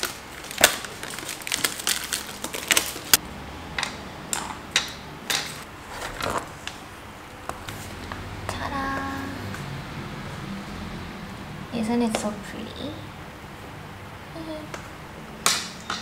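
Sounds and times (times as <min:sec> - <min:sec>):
plastic wrapping crinkling: 0:00.0 - 0:03.2.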